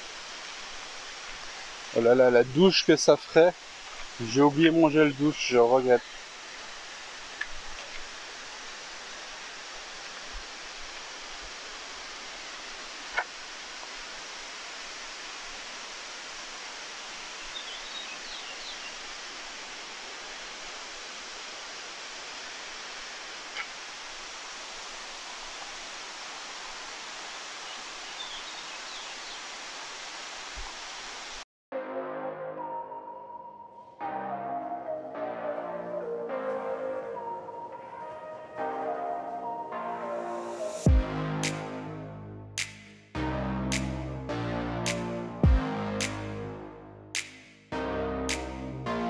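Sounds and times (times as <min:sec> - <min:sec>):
waterfall roaring: 0:00.0 - 0:31.4
sharp click: 0:47.2 - 0:47.5.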